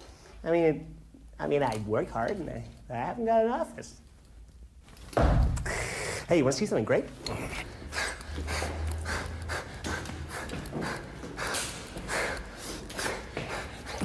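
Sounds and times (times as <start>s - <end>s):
man panting: 5.6s - 6.3s, 7.2s - 14.0s.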